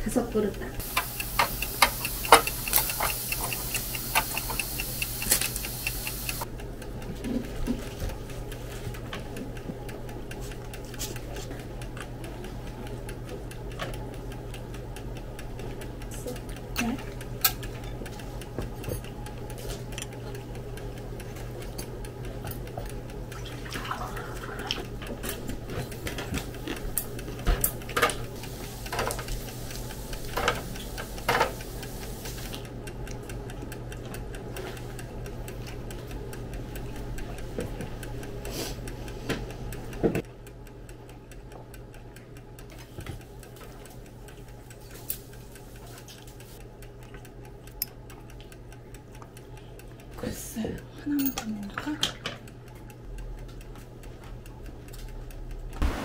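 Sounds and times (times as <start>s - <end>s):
wall clock ticking: 0.0s - 23.4s, 24.3s - 56.0s
sharp clicks and taps: 0.8s - 6.5s.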